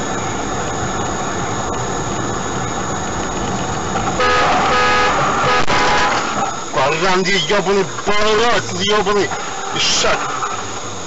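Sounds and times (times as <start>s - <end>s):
car engine and road noise: 0.0s - 11.0s
car horn: 4.2s - 6.5s.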